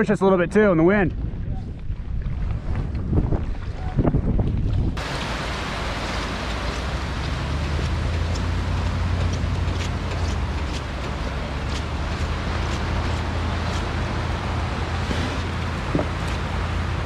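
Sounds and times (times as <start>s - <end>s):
wind rumbling on microphone: 0.0s - 17.0s
surf washing over beach: 5.0s - 17.0s.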